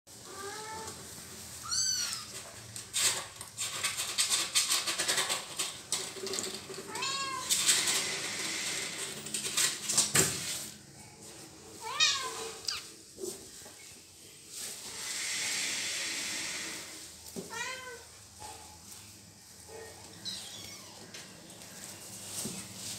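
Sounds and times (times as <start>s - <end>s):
rustling in hay and cardboard: 0.1s - 3.4s, 10.3s - 15.0s, 16.9s - 22.9s
kitten meowing: 1.6s - 2.3s, 11.8s - 12.9s, 20.2s - 21.0s.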